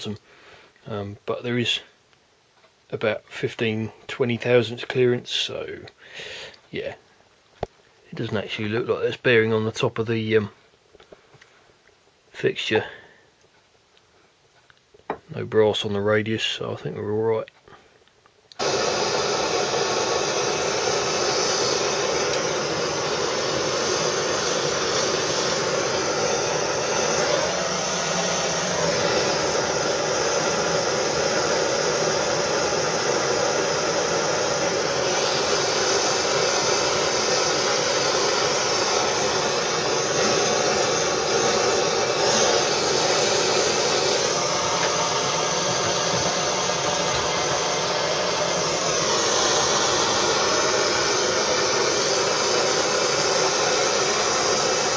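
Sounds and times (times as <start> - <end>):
blowtorch flame hissing: 18.5 - 54.9.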